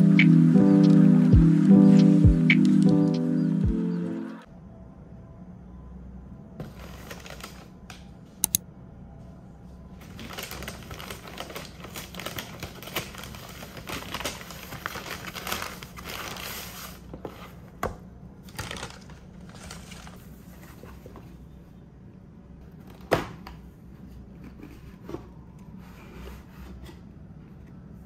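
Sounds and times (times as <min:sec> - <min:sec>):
paper bag rustling: 0:06.6 - 0:07.8, 0:10.0 - 0:17.6, 0:18.4 - 0:21.1
sharp clicks: 0:08.4 - 0:08.6.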